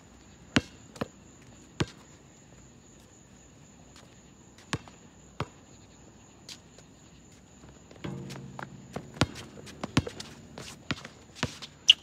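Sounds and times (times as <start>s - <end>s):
basketball bouncing on asphalt: 4.7s - 5.6s, 8.0s - 12.0s.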